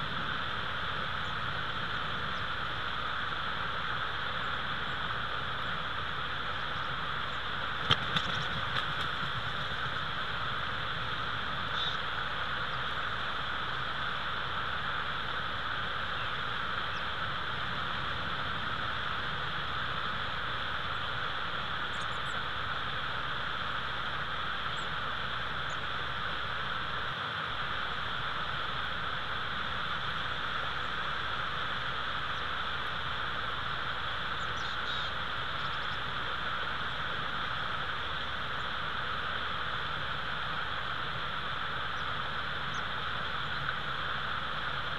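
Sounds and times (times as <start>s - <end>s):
steady microphone hiss: 0.0s - 44.9s.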